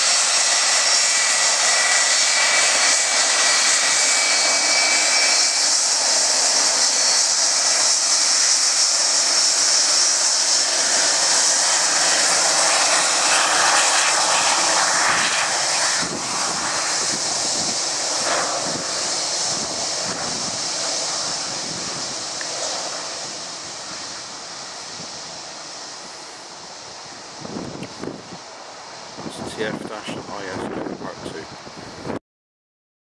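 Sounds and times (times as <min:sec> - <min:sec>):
jet engines taxiing: 0:00.0 - 0:32.2.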